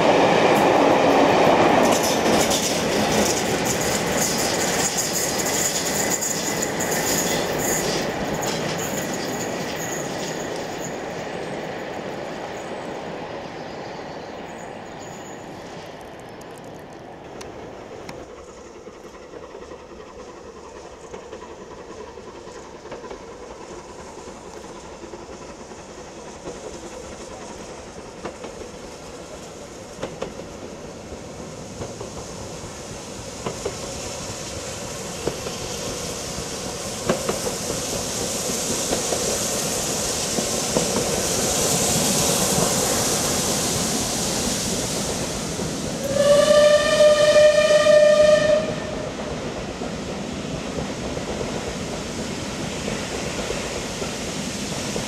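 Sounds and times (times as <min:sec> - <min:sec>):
steam train passing: 0:00.0 - 0:55.0
steam whistle: 0:46.0 - 0:49.2.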